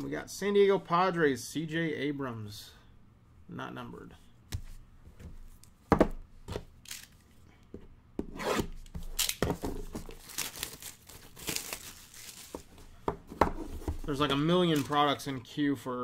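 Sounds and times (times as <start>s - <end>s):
plastic shrink-wrap crinkling: 10.0s - 12.8s.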